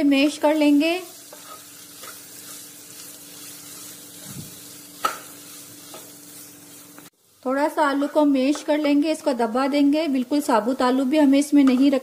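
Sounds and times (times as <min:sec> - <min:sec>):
oil sizzling: 0:00.0 - 0:11.4
spatula mashing potatoes in pan: 0:01.2 - 0:07.1.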